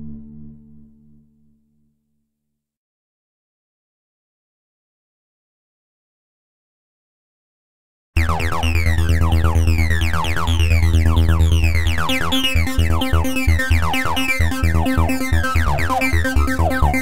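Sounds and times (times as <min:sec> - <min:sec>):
electronic music: 0:08.2 - 0:17.0.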